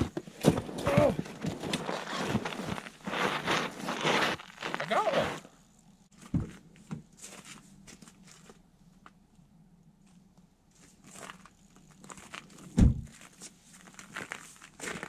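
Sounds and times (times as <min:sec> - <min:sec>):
snowsuit rustling: 0:00.0 - 0:05.5
crunching snow: 0:00.0 - 0:06.3, 0:10.0 - 0:15.0
low thump: 0:12.8 - 0:13.1.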